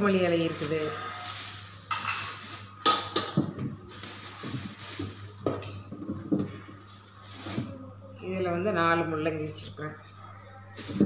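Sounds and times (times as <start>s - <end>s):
plastic bag rustling: 0.0s - 7.9s, 10.7s - 11.0s.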